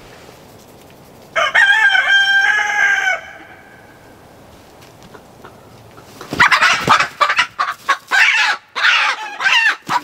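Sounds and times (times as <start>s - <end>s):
rooster crowing: 1.4s - 3.8s
hen squawking and clucking: 5.0s - 10.0s.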